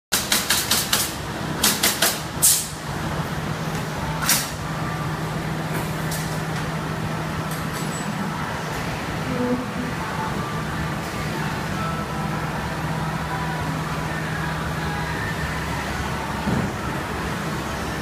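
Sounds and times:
sharp clicks and knocks: 0:00.1 - 0:02.2.

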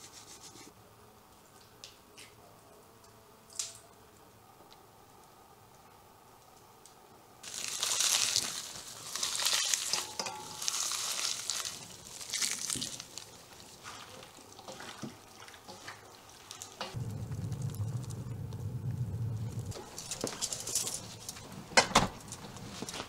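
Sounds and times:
wet squelching and rustling: 0:07.4 - 0:18.2.

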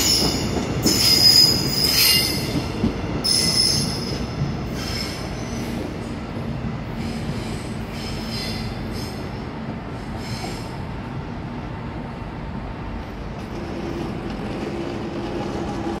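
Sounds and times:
train wheels squealing on rails: 0:00.0 - 0:06.2, 0:06.8 - 0:10.9
wheels rumbling on track: 0:03.9 - 0:16.0.

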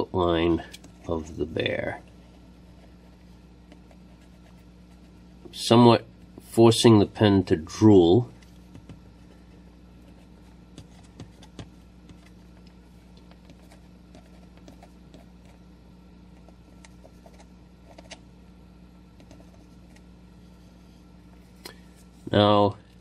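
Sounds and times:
low electrical hum: 0:00.0 - 0:23.0
pen nib scratching paper: 0:16.4 - 0:18.2, 0:19.2 - 0:20.0.

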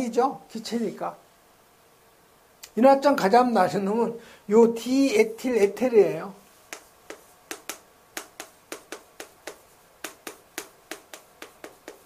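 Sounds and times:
chalk tapping on blackboard: 0:06.6 - 0:12.0.

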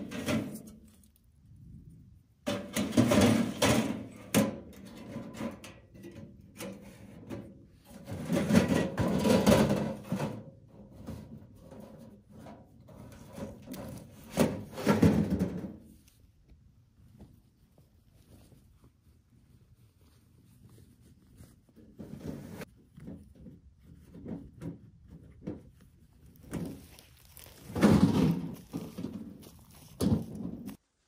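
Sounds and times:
sheet metal scraping and knocking: 0:00.0 - 0:00.9, 0:02.4 - 0:16.0, 0:21.8 - 0:25.8, 0:27.7 - 0:30.8.

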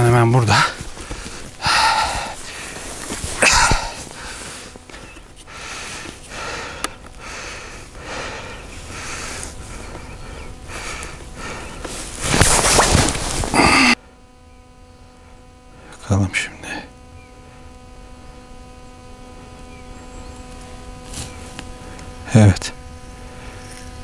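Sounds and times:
man breathing hard: 0:00.5 - 0:12.2, 0:13.4 - 0:14.1.

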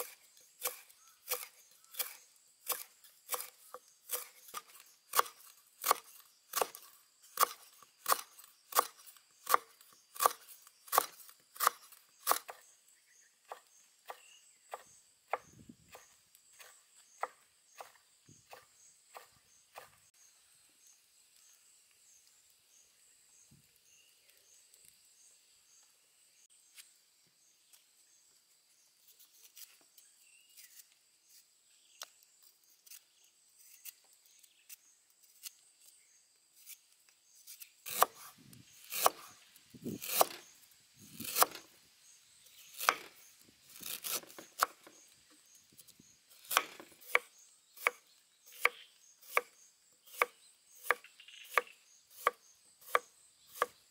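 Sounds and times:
knife chopping on wooden board: 0:00.0 - 0:12.6, 0:37.9 - 0:38.3, 0:38.9 - 0:39.3, 0:39.9 - 0:40.4, 0:41.2 - 0:41.7, 0:42.8 - 0:43.1, 0:43.8 - 0:44.9, 0:46.4 - 0:48.0, 0:48.6 - 0:49.5, 0:50.1 - 0:53.8
knife scraping a root: 0:00.0 - 0:12.6, 0:29.0 - 0:36.0, 0:36.6 - 0:41.7, 0:42.5 - 0:45.1, 0:45.8 - 0:53.9.

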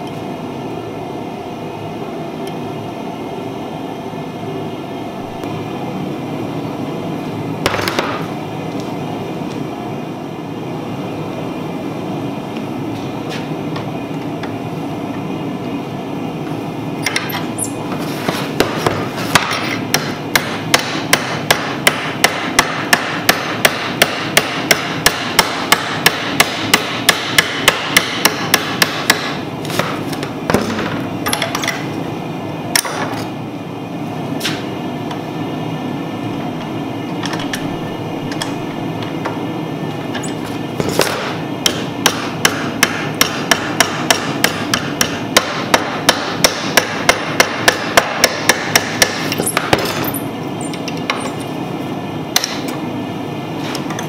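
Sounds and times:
steady background noise: 0:00.0 - 0:54.0
hammer striking hot iron: 0:18.6 - 0:30.0, 0:40.8 - 0:50.1, 0:52.3 - 0:52.8.

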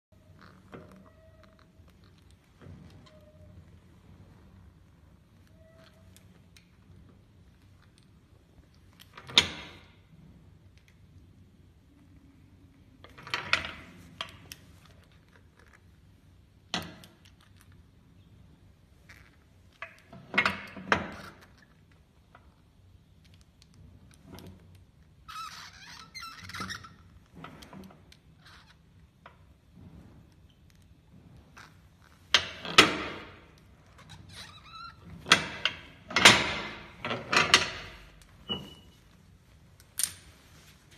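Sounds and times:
brief squeak: 0:38.5 - 0:39.0.

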